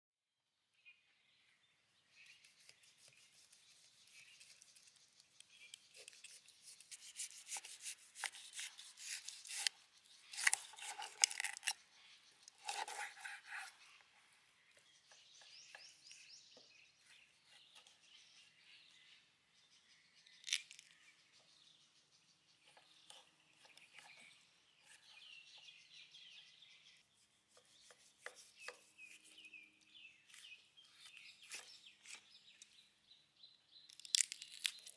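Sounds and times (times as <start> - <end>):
knife cutting on wooden board: 5.9 - 11.7, 12.6 - 13.8.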